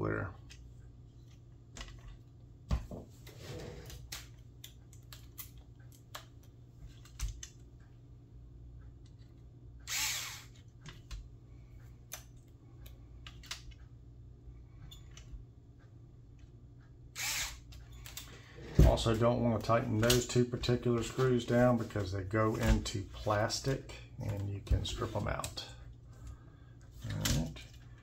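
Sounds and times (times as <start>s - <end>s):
cordless screwdriver running: 9.9s - 10.6s, 17.2s - 17.6s.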